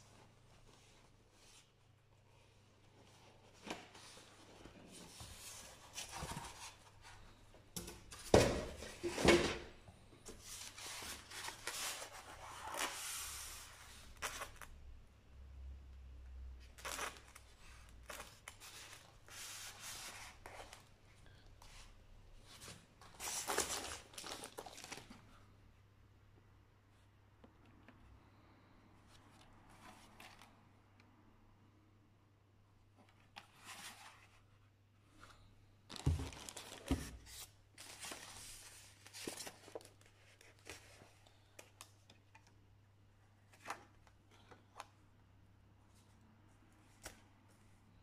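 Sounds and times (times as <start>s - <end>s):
cardboard rustling and scraping: 2.3s - 7.3s
plastic wrap rustling: 23.1s - 25.2s, 35.9s - 41.0s.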